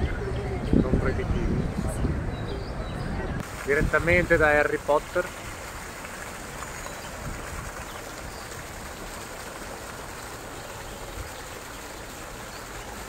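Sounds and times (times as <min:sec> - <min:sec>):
fountain water splashing: 0:03.4 - 0:13.0.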